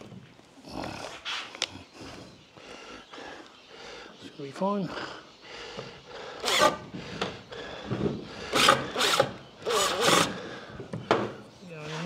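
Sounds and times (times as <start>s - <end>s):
cordless drill driving screw: 6.4s - 6.8s, 8.5s - 10.3s.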